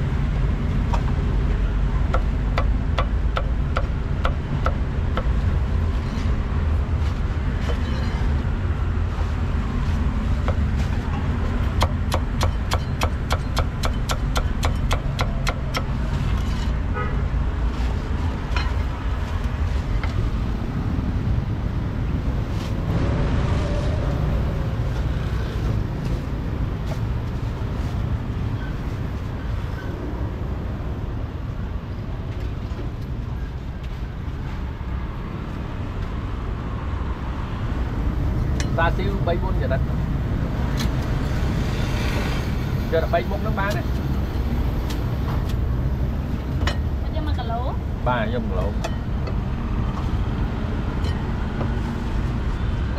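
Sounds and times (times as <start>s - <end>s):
road traffic rumble: 0.0s - 52.9s
cleaver chopping on wooden block: 2.1s - 5.3s, 11.8s - 15.9s.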